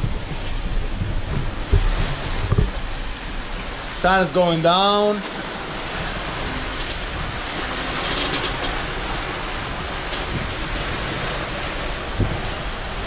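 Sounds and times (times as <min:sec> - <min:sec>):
low thump: 0:00.0 - 0:02.8
water rushing past hull: 0:00.0 - 0:13.0
wind: 0:00.0 - 0:13.0.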